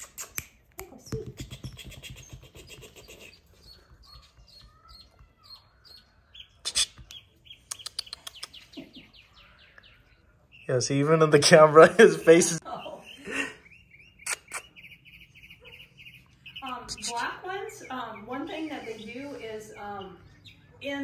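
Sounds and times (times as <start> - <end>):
puppies squeaking and whimpering: 0.0 - 9.5, 11.4 - 20.9.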